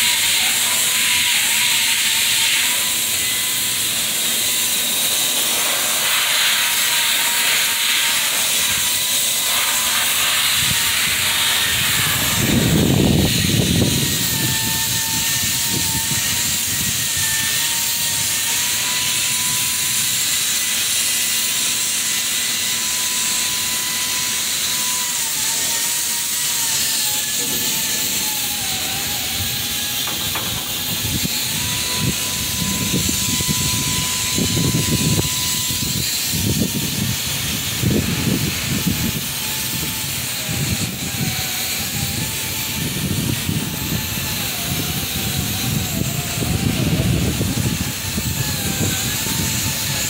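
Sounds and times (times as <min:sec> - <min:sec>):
industrial machinery hiss: 0:00.0 - 0:50.0
thin steady whine: 0:00.0 - 0:50.0.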